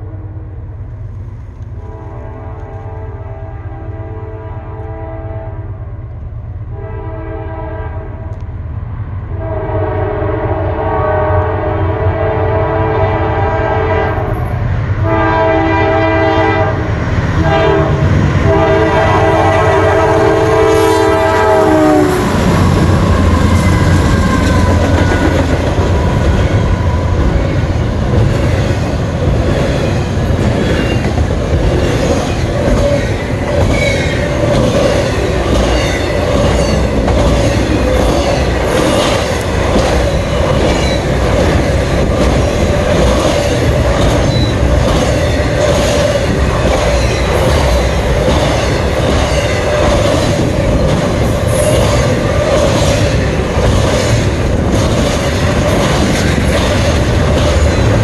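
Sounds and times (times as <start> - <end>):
locomotive air horn blasts: 1.8 - 5.8, 6.7 - 8.3, 9.4 - 14.4, 15.0 - 25.3
locomotive engine rumble: 14.1 - 58.0
train wheels clattering on rails: 16.9 - 58.0.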